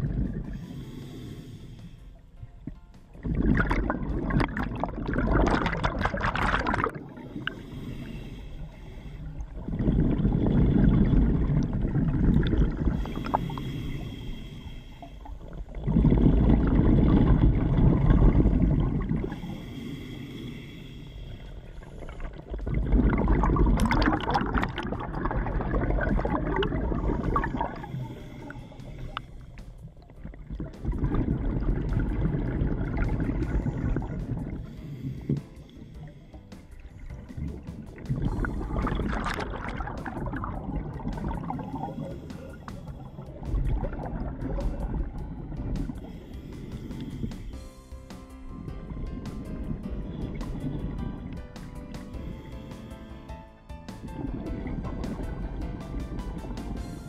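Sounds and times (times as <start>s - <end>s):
exhaust bubbles rushing: 0.0s - 0.6s, 3.2s - 7.6s, 9.5s - 13.4s, 15.7s - 19.4s, 22.0s - 28.0s, 30.2s - 34.7s, 36.8s - 46.1s, 54.0s - 57.0s
regulator inhalation hissing: 0.5s - 2.3s, 7.2s - 9.7s, 12.8s - 15.8s, 19.2s - 22.5s, 26.3s - 30.0s, 44.8s - 49.0s.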